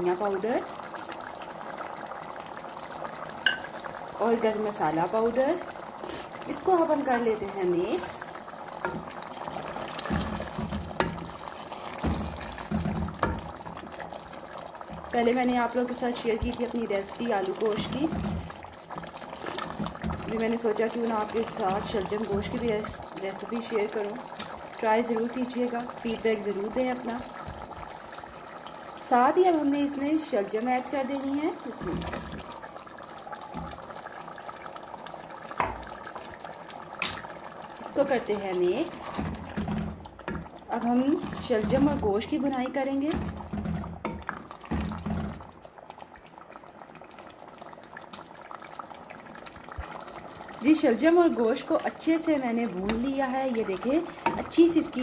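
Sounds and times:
curry bubbling in oil: 0.0s - 55.0s
wooden spoon knocking and scraping pot: 8.8s - 14.1s, 14.8s - 22.9s, 31.7s - 32.5s, 38.3s - 45.6s, 52.7s - 55.0s.

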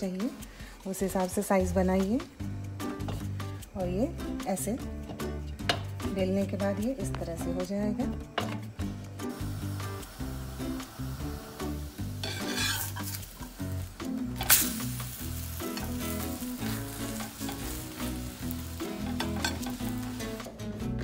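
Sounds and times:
soft background music: 0.0s - 21.0s
flatbread sizzling in frying pan: 9.1s - 20.6s
metal spatula scraping: 12.2s - 13.5s.

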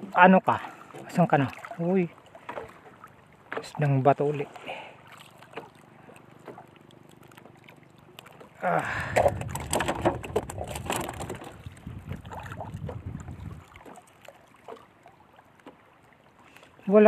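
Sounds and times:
water sloshing: 0.0s - 17.0s
mesh net bag rustling and clattering: 9.5s - 11.5s.

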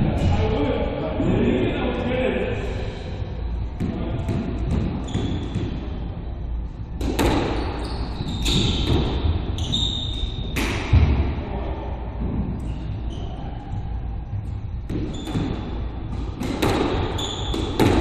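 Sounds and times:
court shoes squeaking on floor: 4.2s - 6.0s, 7.0s - 10.7s, 12.6s - 13.7s, 14.9s - 18.0s.

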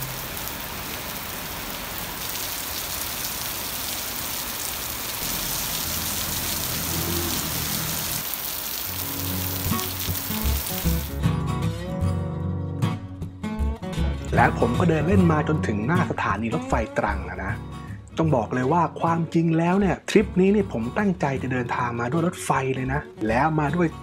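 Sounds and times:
heavy rain on a street: 0.0s - 11.1s.

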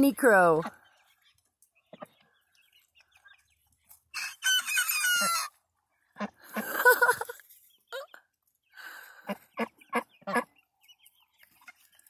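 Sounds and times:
young cockerel crowing: 4.1s - 5.6s.

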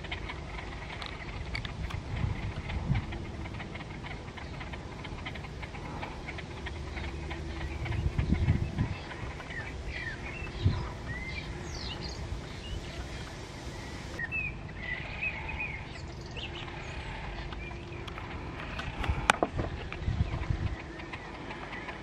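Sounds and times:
small birds chirping: 0.0s - 22.0s
steady low rumble: 0.0s - 22.0s.

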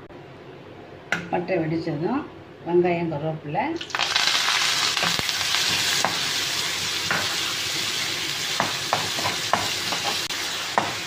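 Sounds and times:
onions sizzling in hot oil: 3.8s - 11.0s
spatula knocking and scraping pan: 5.6s - 6.3s, 7.0s - 7.4s, 8.5s - 11.0s.

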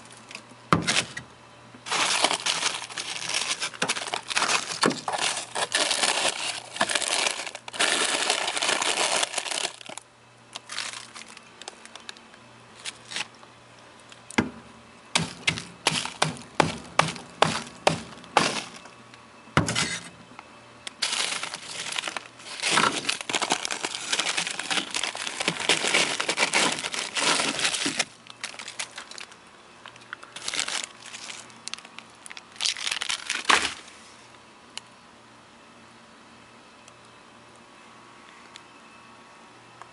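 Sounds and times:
plastic bags crinkling: 1.8s - 12.2s, 12.8s - 13.4s, 15.2s - 19.0s, 20.9s - 33.9s
ice crunching and breaking: 1.9s - 10.0s, 10.6s - 11.4s, 17.0s - 18.9s, 21.0s - 29.4s, 30.4s - 33.8s.

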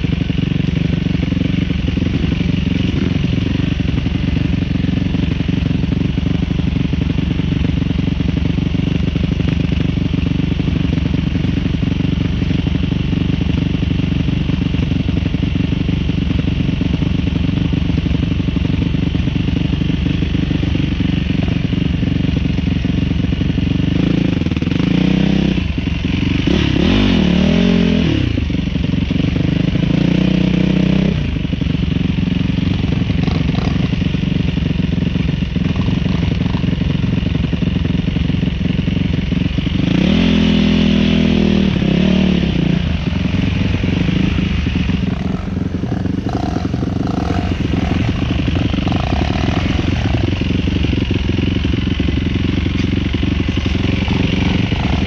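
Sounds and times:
dirt bike engine revving: 26.3s - 28.4s, 32.6s - 34.2s, 39.7s - 55.0s.

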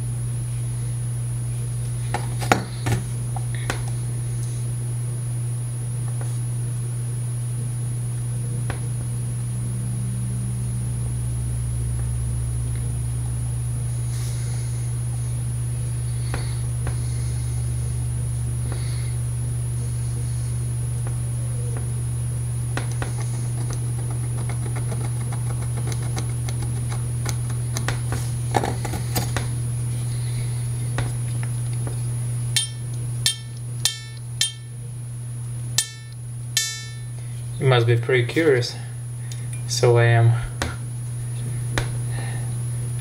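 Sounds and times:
steady low hum: 0.0s - 43.0s
metal tool tapping on harmonica: 32.6s - 34.7s, 35.8s - 37.1s.

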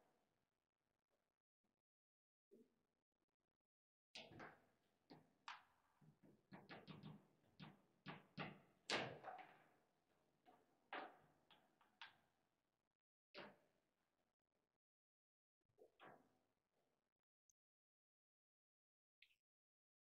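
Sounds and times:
foosball ball knocks and clacks: 6.6s - 9.7s.

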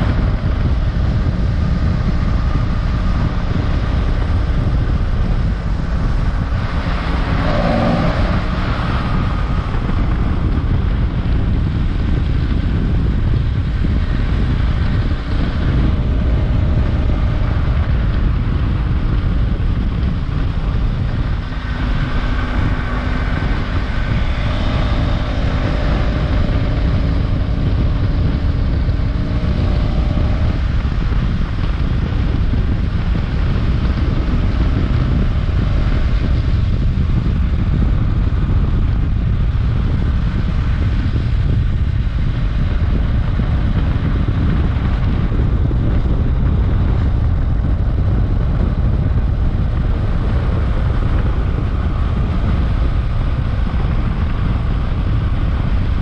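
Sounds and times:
motorcycle engine running: 0.0s - 56.0s
wind noise on microphone: 0.0s - 56.0s.

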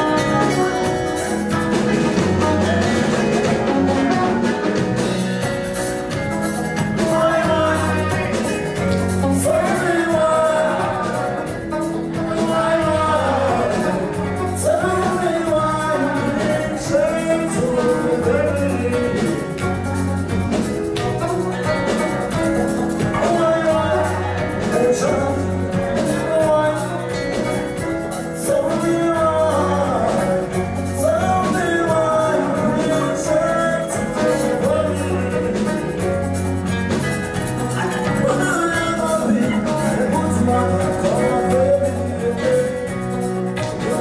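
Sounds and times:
bass line: 0.0s - 44.0s
drum kit: 0.0s - 44.0s
electric guitar: 0.0s - 44.0s
people singing: 9.3s - 19.6s.

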